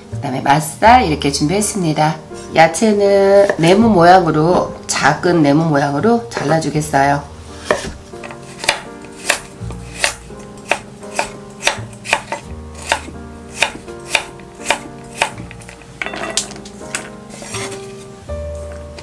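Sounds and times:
soft background music: 0:00.0 - 0:19.0
knife chopping on wooden board: 0:07.6 - 0:15.8.

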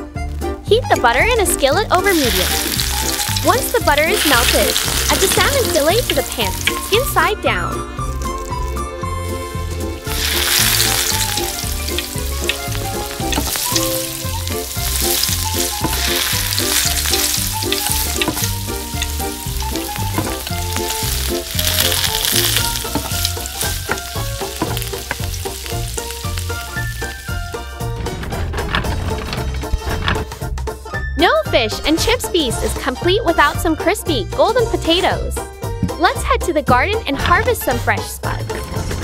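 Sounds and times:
fish sizzling in butter: 0:02.0 - 0:07.4, 0:08.0 - 0:27.6
background music with steady beat: 0:30.3 - 0:37.2.

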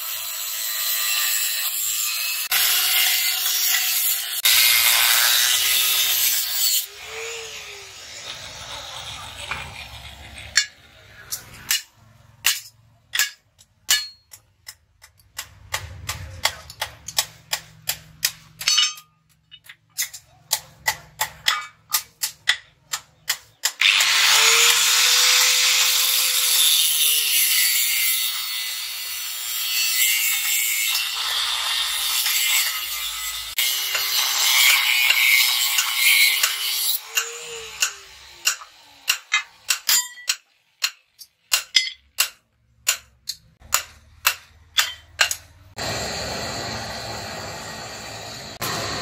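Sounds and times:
angle grinder cutting steel: 0:00.0 - 0:14.2, 0:23.6 - 0:43.6, 0:44.8 - 0:49.0.

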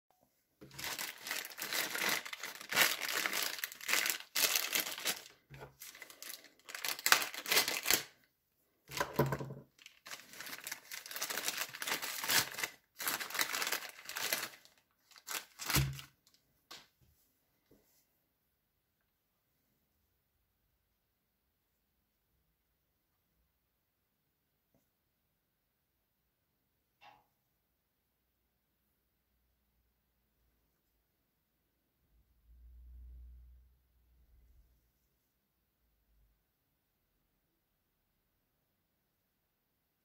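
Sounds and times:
plastic bag crinkling and tearing: 0:00.6 - 0:08.3, 0:08.9 - 0:16.3.

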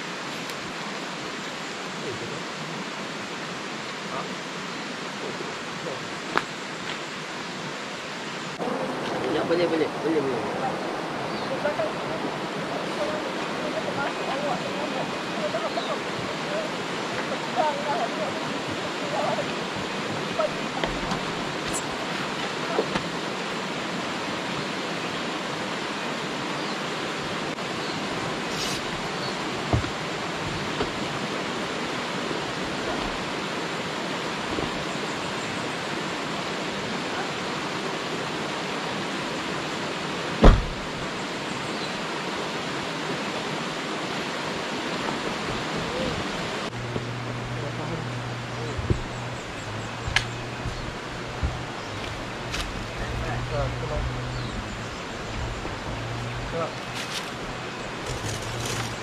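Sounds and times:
river rushing: 0:00.0 - 0:59.0
sharp thump: 0:40.4 - 0:40.8.

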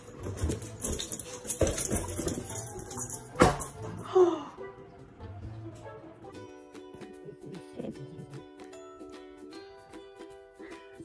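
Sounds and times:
music with jingling shaker: 0:00.0 - 0:04.2, 0:06.3 - 0:11.0.

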